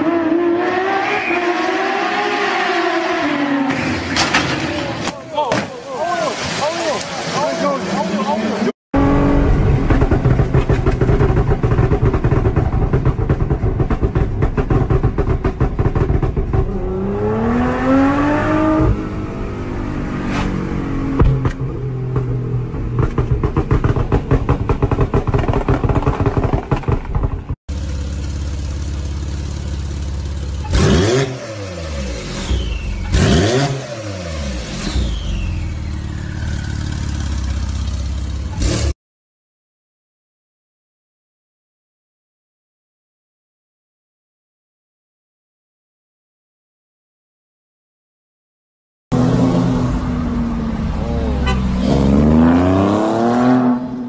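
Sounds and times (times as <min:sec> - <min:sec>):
sports car engine revving: 0:09.0 - 0:24.0, 0:27.7 - 0:38.9, 0:49.1 - 0:54.0.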